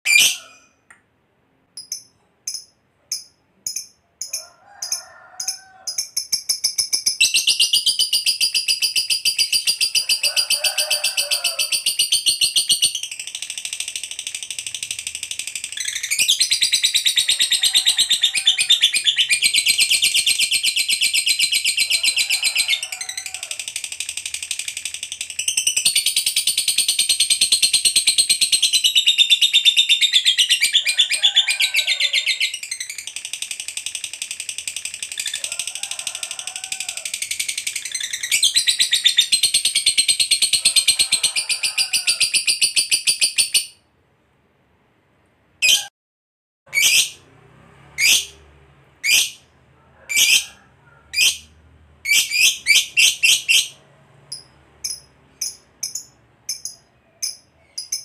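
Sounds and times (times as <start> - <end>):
lovebird chattering trill: 1.8 - 43.7, 49.0 - 49.4, 50.1 - 50.5, 51.1 - 51.5, 52.1 - 58.0.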